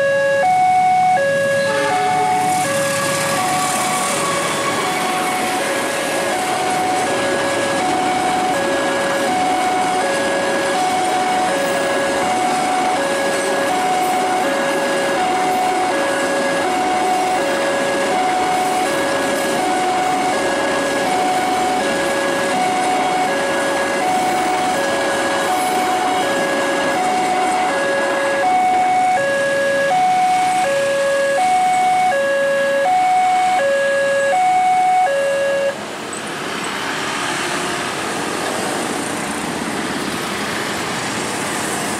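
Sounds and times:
level crossing warning bell: 0:00.0 - 0:35.8
road traffic moving off: 0:00.0 - 0:41.9
freight train rumbling past: 0:01.0 - 0:30.6.

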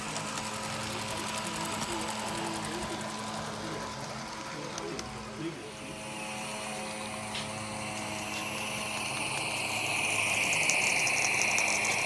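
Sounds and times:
steam exhaust chuffs: 0:00.0 - 0:12.0
steam hiss: 0:05.8 - 0:12.0.

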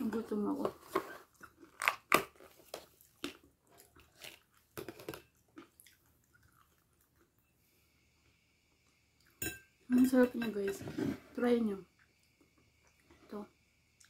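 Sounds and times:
person chewing crunchy food: 0:01.1 - 0:07.4.

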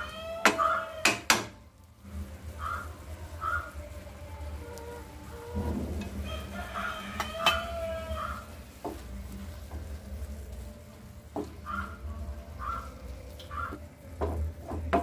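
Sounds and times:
spatula stirring thick curry in pan: 0:00.0 - 0:15.0
pitched bird calls: 0:12.6 - 0:13.8.

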